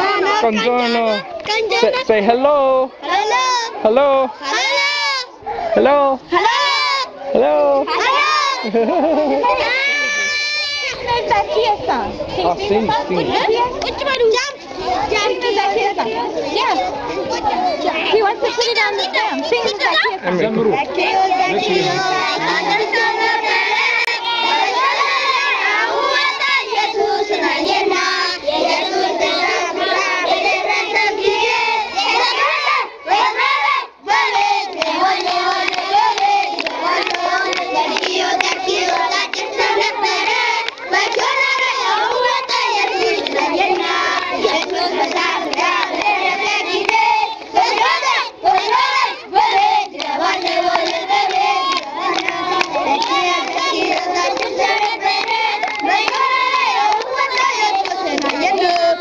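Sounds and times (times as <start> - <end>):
children singing: 18.9 - 59.0
hand clapping: 34.7 - 38.6, 49.8 - 58.9.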